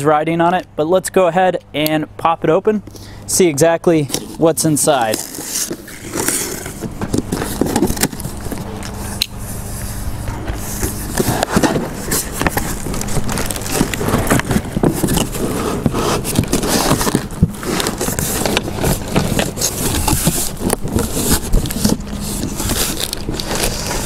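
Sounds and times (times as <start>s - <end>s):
small knocks and crackles: 5.1s - 9.0s, 10.2s - 24.0s
cardboard box flaps rustling: 10.4s - 24.0s.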